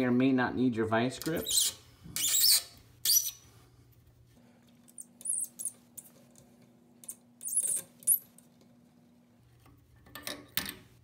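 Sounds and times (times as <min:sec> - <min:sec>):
plastic threads squeaking and clicking: 0:01.2 - 0:03.4, 0:05.0 - 0:05.8, 0:07.4 - 0:08.2.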